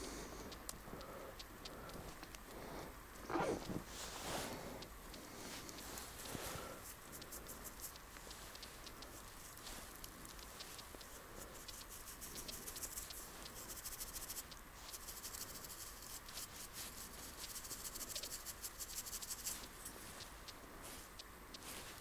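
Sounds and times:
snow crunching: 0:03.3 - 0:04.8.

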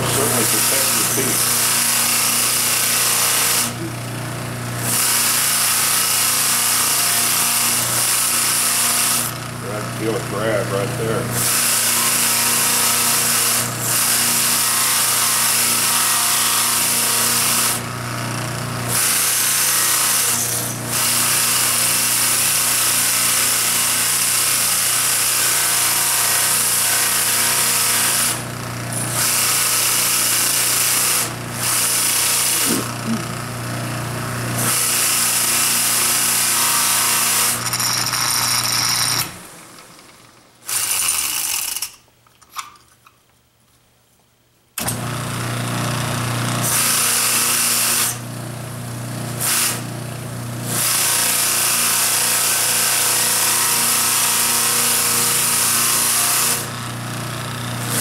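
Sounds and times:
wood hissing against sanding wheel: 0:00.0 - 0:04.0, 0:31.7 - 0:33.5
motor winding down: 0:00.0 - 0:05.0, 0:29.2 - 0:36.2
electric motor humming: 0:00.0 - 0:05.9, 0:25.0 - 0:39.6.

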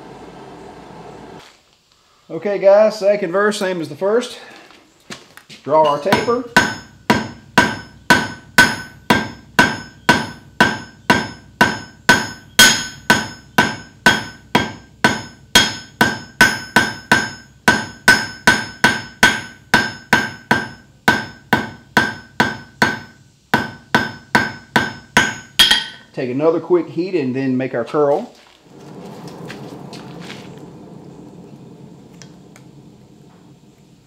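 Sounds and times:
hammer blows ringing on anvil: 0:05.8 - 0:26.1.

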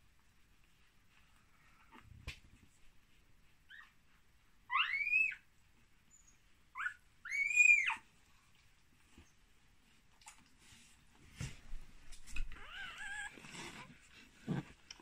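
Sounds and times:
puppy squealing cries: 0:04.7 - 0:05.5, 0:06.7 - 0:08.0, 0:12.5 - 0:13.4.

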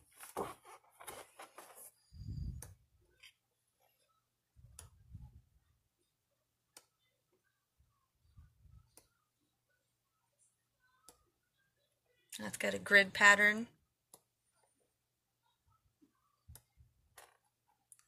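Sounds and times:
paper rustling: 0:00.0 - 0:02.0.

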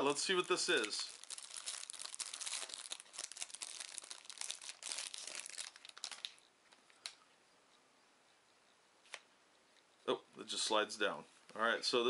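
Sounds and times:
plastic wrapping crinkling: 0:00.0 - 0:07.2.

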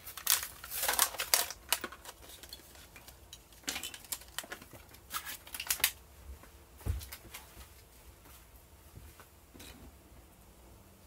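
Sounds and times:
plastic blister pack crinkling: 0:00.0 - 0:06.0.

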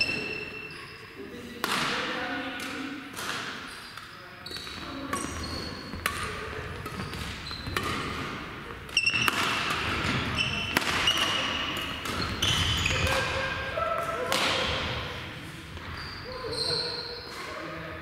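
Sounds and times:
shoes squeaking on court floor: 0:00.0 - 0:01.2, 0:03.5 - 0:13.6, 0:15.3 - 0:17.5
racket hitting shuttlecock: 0:01.6 - 0:15.2.

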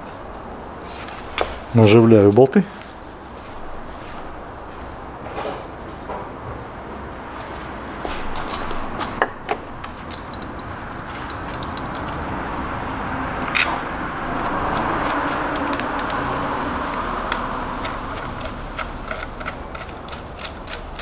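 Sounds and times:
steady background rushing noise: 0:00.0 - 0:21.0.

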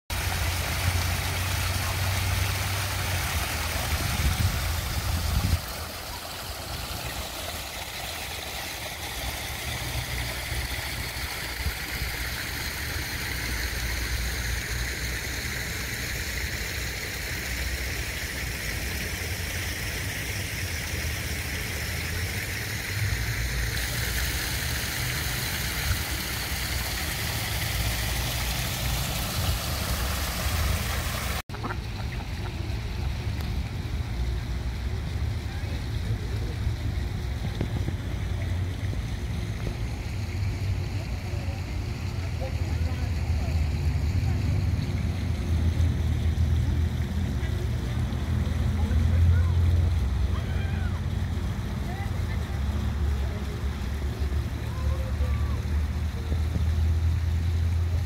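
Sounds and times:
waterfall splashing into pond: 0:00.1 - 0:58.0.

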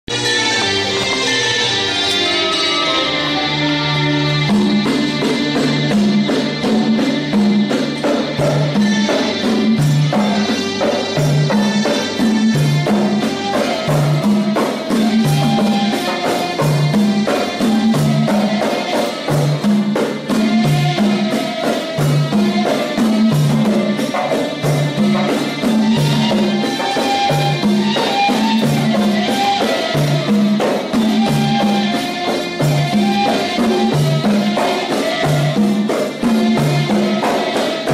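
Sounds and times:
voices singing: 0:00.7 - 0:37.9
frame drums beaten by hand: 0:04.3 - 0:37.9.

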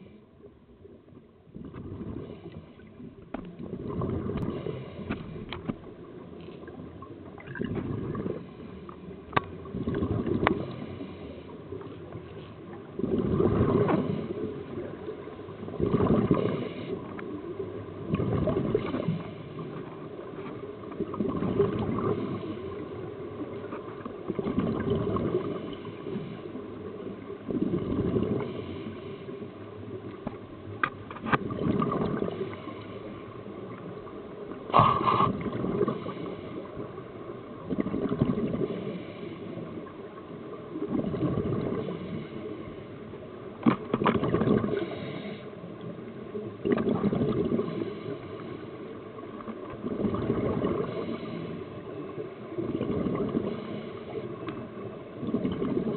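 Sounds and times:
gurgling exhaust bubbles: 0:13.0 - 0:14.1, 0:15.7 - 0:16.6, 0:18.1 - 0:19.2, 0:40.8 - 0:41.9, 0:46.6 - 0:47.8, 0:49.8 - 0:51.0, 0:52.6 - 0:53.6
regulator inhalations: 0:44.8 - 0:45.5.

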